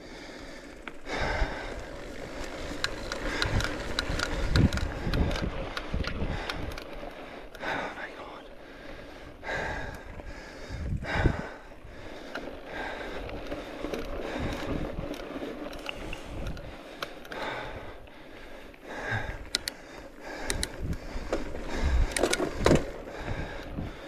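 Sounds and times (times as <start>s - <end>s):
person breathing hard: 0.0s - 3.8s, 6.2s - 24.0s
gusty rumbling wind noise on microphone: 2.6s - 7.1s, 9.2s - 13.4s, 14.0s - 15.2s, 16.0s - 16.8s, 20.4s - 24.0s
sharp clicks: 19.4s - 19.8s, 20.4s - 22.9s.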